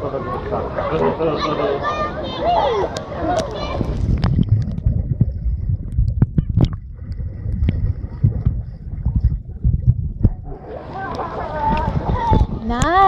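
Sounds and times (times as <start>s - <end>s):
muffled underwater water rumble: 2.4s - 13.0s
sharp underwater clicks and pops: 3.0s - 10.4s.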